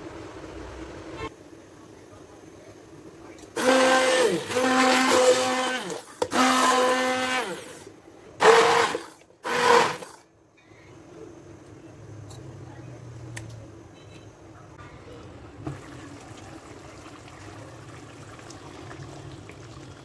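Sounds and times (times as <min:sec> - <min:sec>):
immersion blender motor whining: 0:03.6 - 0:10.2.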